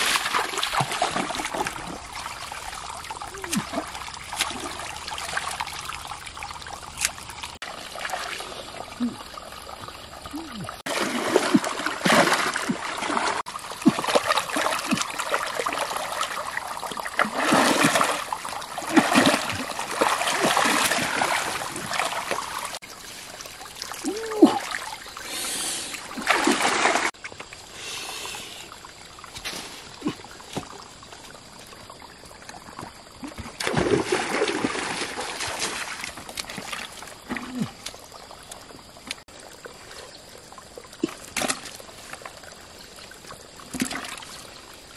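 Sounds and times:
hands splashing stream water: 0:00.0 - 0:08.8, 0:10.8 - 0:25.0, 0:25.9 - 0:27.2, 0:32.9 - 0:39.2
water pouring from net: 0:10.8 - 0:25.0, 0:26.0 - 0:27.2.

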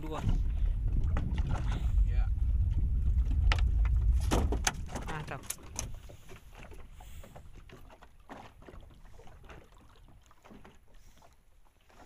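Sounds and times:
low rumble: 0:00.0 - 0:06.5.

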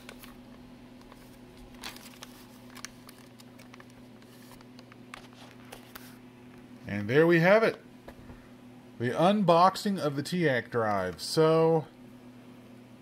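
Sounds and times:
steady low hum: 0:00.0 - 0:13.0
plastic bag crinkling: 0:01.1 - 0:05.7.

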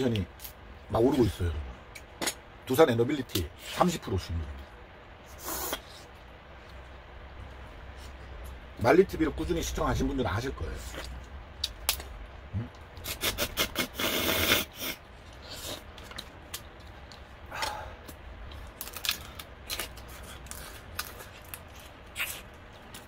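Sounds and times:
crab shells cracking and crunching: 0:11.0 - 0:12.2, 0:15.8 - 0:23.0.

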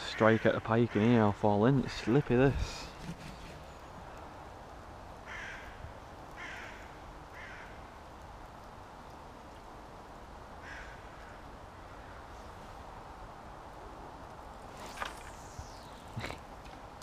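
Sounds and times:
bird calling: 0:14.8 - 0:16.7.

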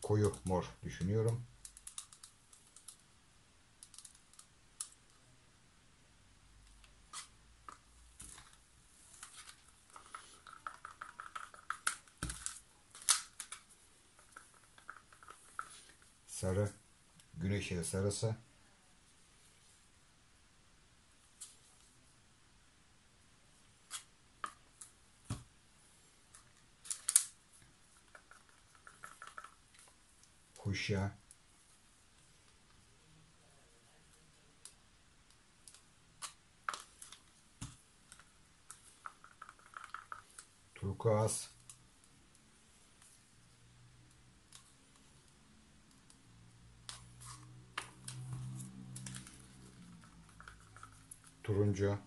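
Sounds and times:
plastic cups clicking: 0:09.3 - 0:13.6, 0:14.2 - 0:16.0, 0:28.0 - 0:29.6, 0:38.2 - 0:40.5, 0:47.8 - 0:51.4.

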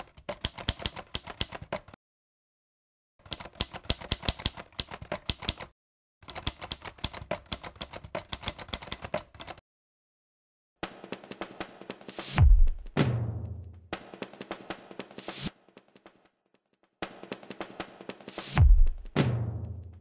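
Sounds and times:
typewriter keys clacking: 0:00.0 - 0:02.0, 0:03.2 - 0:09.6.

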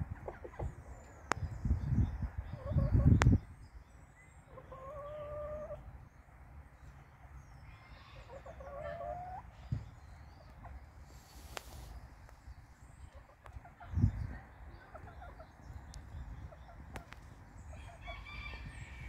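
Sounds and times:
chicken calls: 0:00.0 - 0:01.4, 0:02.0 - 0:03.4, 0:04.4 - 0:05.9, 0:07.6 - 0:11.9, 0:13.0 - 0:19.0.

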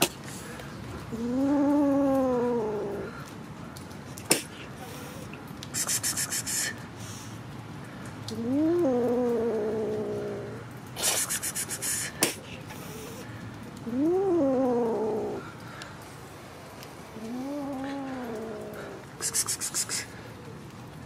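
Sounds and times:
kitten spitting: 0:04.2 - 0:04.8, 0:05.6 - 0:06.8, 0:08.3 - 0:13.2, 0:17.2 - 0:20.2
kitten hissing: 0:04.2 - 0:07.2, 0:08.4 - 0:13.2, 0:14.0 - 0:15.4, 0:17.2 - 0:20.2
kitten meowing: 0:13.9 - 0:15.4, 0:17.2 - 0:19.8.

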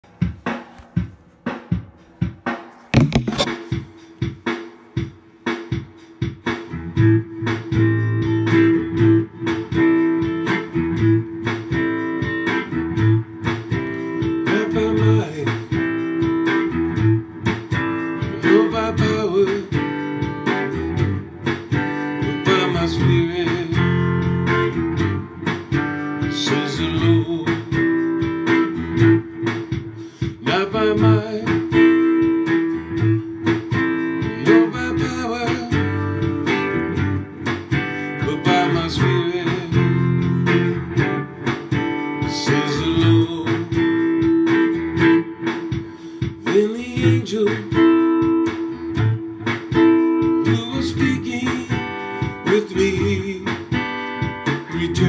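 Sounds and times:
guitar strumming and plucking: 0:02.8 - 0:04.5, 0:05.7 - 0:55.0
clicks: 0:03.0 - 0:03.6.

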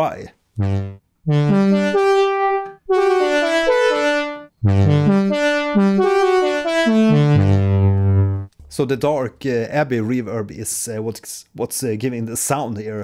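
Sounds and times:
synth chords over bass note: 0:00.6 - 0:08.5.

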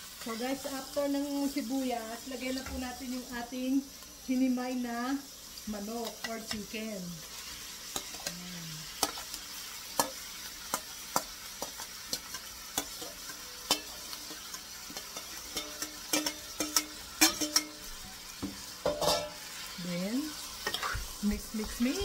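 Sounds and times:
oil sizzling in a frying pan: 0:00.0 - 0:22.0
metal spoon clinking on steel bowl: 0:11.6 - 0:17.8, 0:18.9 - 0:19.4.

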